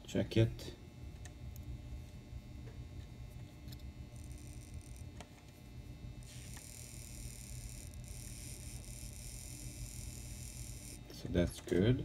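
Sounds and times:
small electric motor running: 3.7s - 5.2s, 6.1s - 11.1s.

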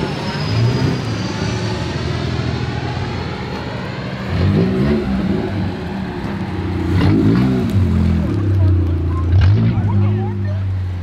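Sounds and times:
low-flying aircraft whine: 0.0s - 7.0s
car engines idling: 0.0s - 11.0s.

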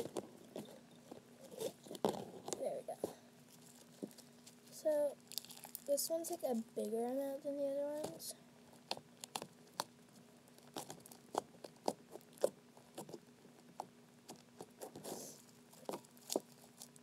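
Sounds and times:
slime squishing and popping: 5.3s - 5.9s, 8.8s - 10.0s, 10.6s - 13.2s.

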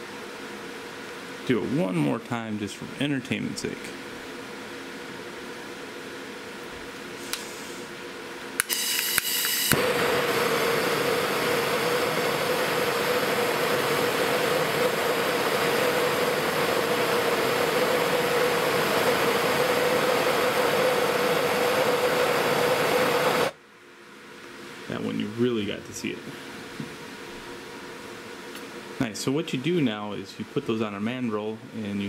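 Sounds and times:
propane torch hissing: 7.0s - 8.0s, 8.6s - 23.6s.

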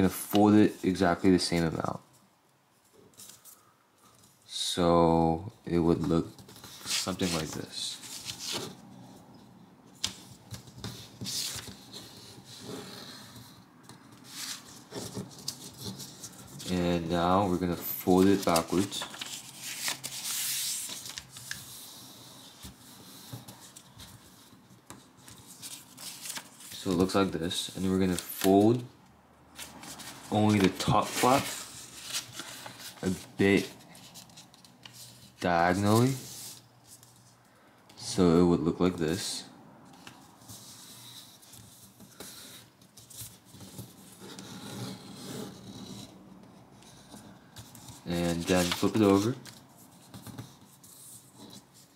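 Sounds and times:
paper rustling: 6.0s - 8.8s, 10.0s - 28.9s, 29.6s - 37.3s, 46.9s - 51.9s
paper scraping on table: 10.8s - 24.4s, 29.6s - 37.2s, 46.9s - 51.9s.

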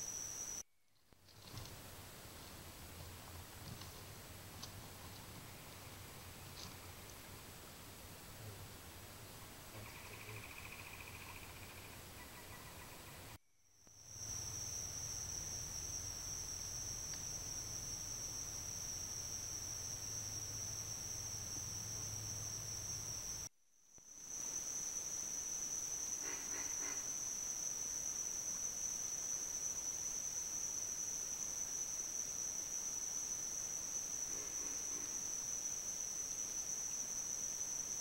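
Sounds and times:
high-pitched insect chorus: 0.0s - 0.6s, 9.5s - 38.0s.

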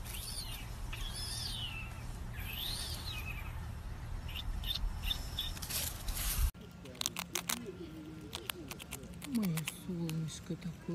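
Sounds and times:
high whistled calls: 0.0s - 3.6s.

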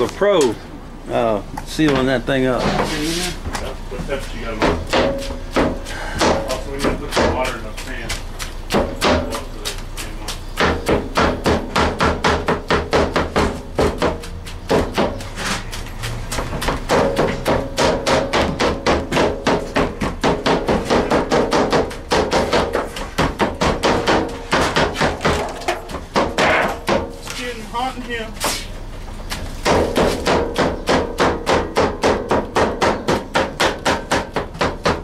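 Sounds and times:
cleavers chopping meat: 4.0s - 27.5s, 29.6s - 35.0s.

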